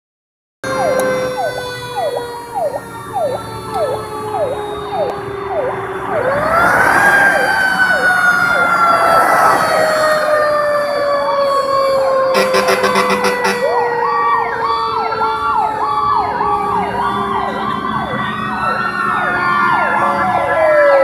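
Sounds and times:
siren winding up and dropping: 0.6s - 14.9s
siren yelping: 0.6s - 21.0s.

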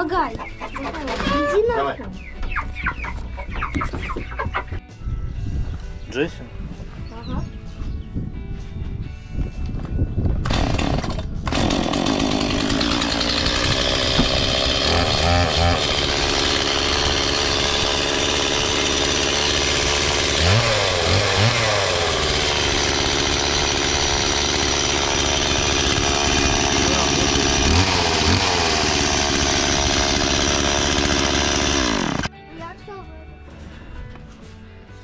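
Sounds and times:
small petrol engine running: 10.4s - 32.3s.

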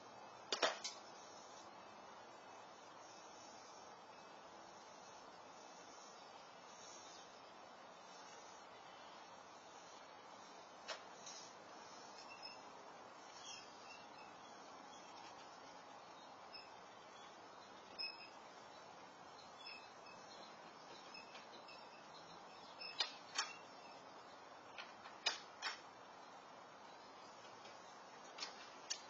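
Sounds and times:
faint microphone hiss: 0.0s - 29.0s
bird chirps: 12.0s - 24.4s.

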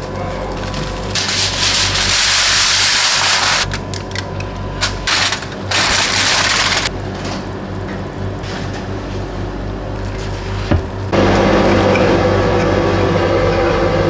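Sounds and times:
foil and cling film crinkling: 0.0s - 6.9s.

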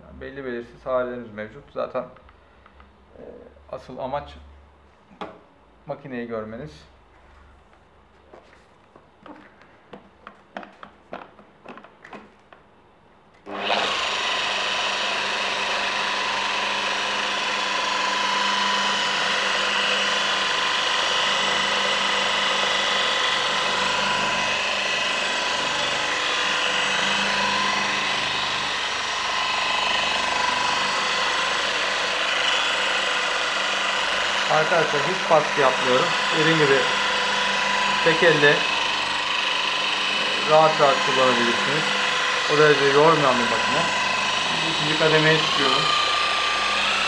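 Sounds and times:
polisher whining: 13.4s - 47.0s.

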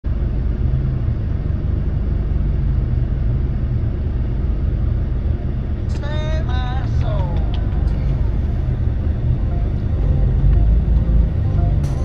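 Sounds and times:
vehicle rumbling: 0.0s - 12.0s.

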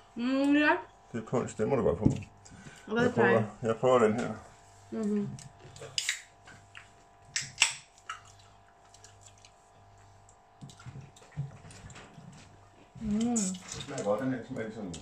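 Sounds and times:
faint steady hum: 0.0s - 15.0s
shells being peeled: 5.0s - 6.3s
chewing: 5.0s - 14.2s.

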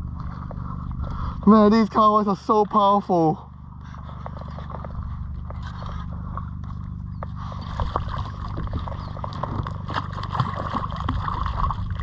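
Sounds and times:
water sloshing and splashing: 3.9s - 12.0s.

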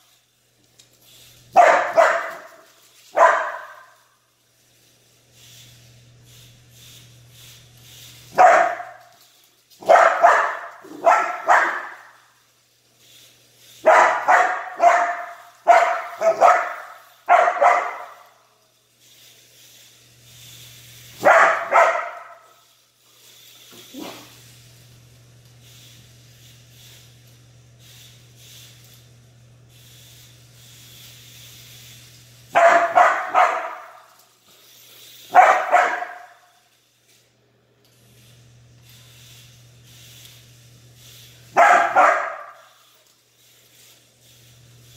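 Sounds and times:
dog barking: 1.6s - 4.0s, 8.4s - 9.0s, 9.8s - 12.1s, 13.8s - 18.3s, 21.2s - 22.5s, 32.5s - 34.1s, 35.3s - 36.4s, 41.6s - 42.7s.

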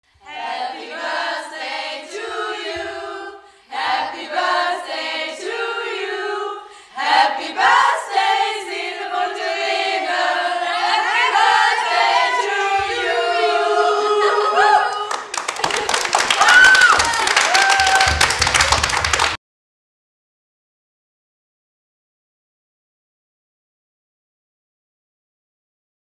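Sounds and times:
female chorus singing: 0.1s - 15.3s.

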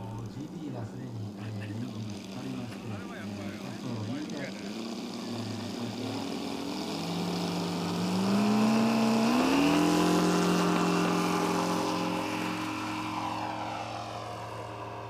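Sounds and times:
model plane radial engine: 0.0s - 15.0s.

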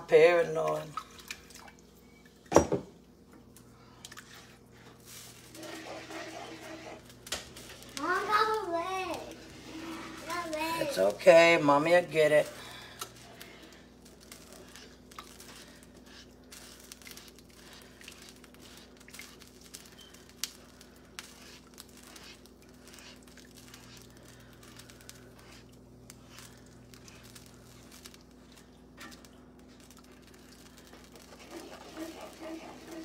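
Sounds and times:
low steady hum: 0.0s - 33.0s
plastic spoon scraping skillet: 5.5s - 7.8s, 30.8s - 33.0s.

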